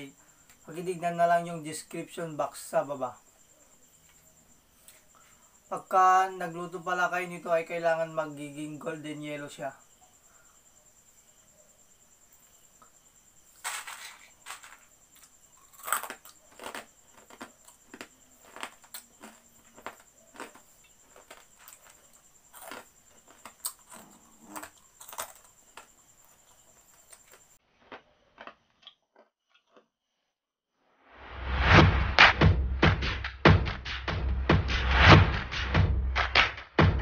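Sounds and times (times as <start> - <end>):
crunchy snack being chewed: 14.5 - 30.0.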